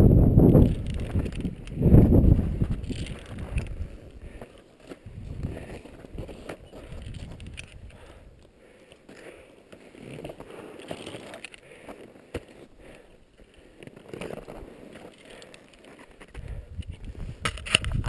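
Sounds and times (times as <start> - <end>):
wind buffeting microphone: 0.0 - 4.4, 5.0 - 8.2, 16.4 - 18.0
crunching footsteps in snow: 0.4 - 8.2, 9.0 - 16.4.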